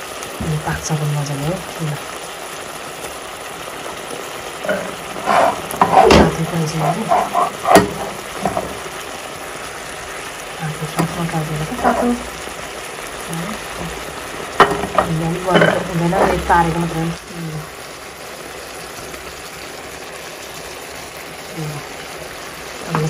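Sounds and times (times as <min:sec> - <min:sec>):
meat sizzling in a pan: 0:00.0 - 0:23.0
spoon scraping and knocking pan: 0:04.6 - 0:09.0, 0:10.9 - 0:12.3, 0:13.8 - 0:17.0.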